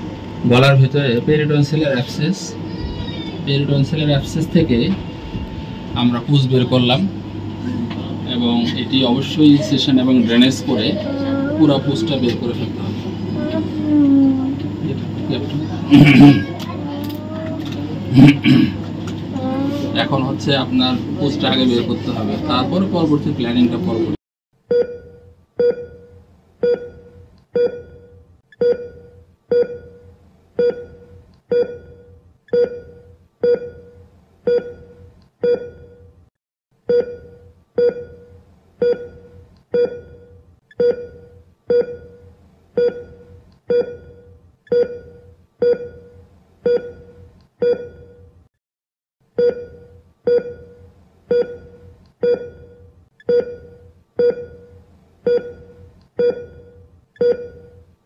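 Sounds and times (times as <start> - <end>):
electronic beeps: 24.7 - 36.1, 49.4 - 57.8.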